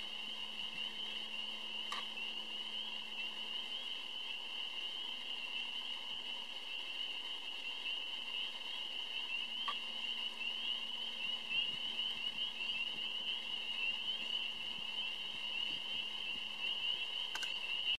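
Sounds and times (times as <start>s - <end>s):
chorus of frogs peeping: 0.0s - 17.9s
faint click: 17.3s - 17.6s.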